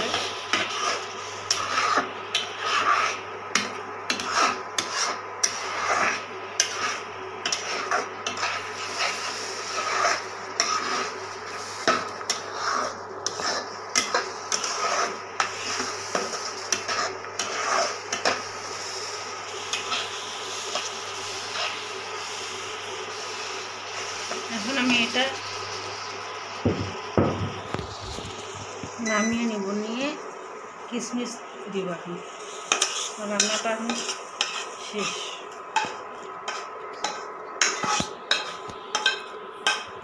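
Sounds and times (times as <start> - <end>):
spoon scraping steel pot: 9.7 - 11.1.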